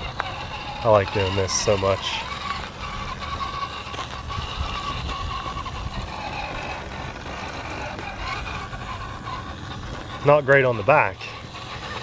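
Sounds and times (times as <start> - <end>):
rc car electric motor whining: 0.0 - 12.0.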